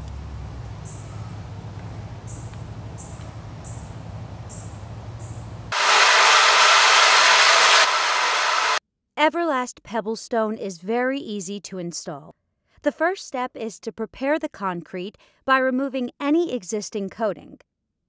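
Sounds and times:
low hum: 0:00.0 - 0:08.8
floor machine grinding hiss: 0:05.7 - 0:08.8.

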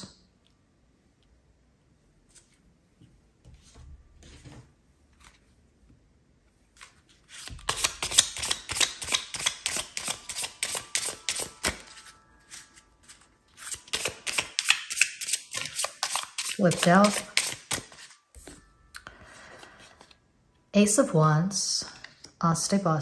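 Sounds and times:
cards rustling: 0:06.7 - 0:18.6
cards shuffling with clicks: 0:06.8 - 0:18.6.

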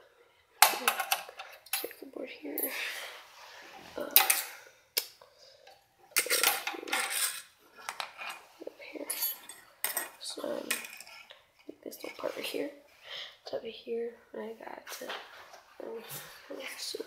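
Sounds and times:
metal and plastic parts clattering: 0:00.6 - 0:02.0, 0:06.2 - 0:08.4.

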